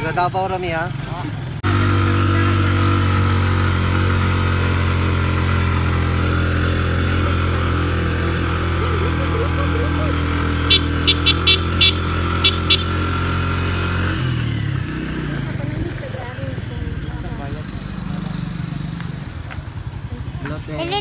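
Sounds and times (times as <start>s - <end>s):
vehicle engine droning: 0.0s - 21.0s.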